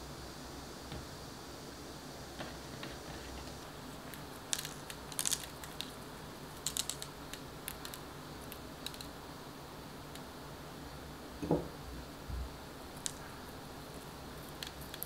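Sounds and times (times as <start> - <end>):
salt grains ticking on dough: 3.6 - 9.3, 13.0 - 15.0.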